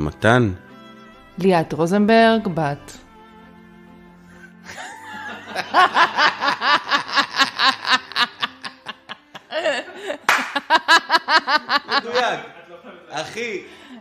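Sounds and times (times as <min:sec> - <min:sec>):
person laughing: 0:04.6 - 0:12.6.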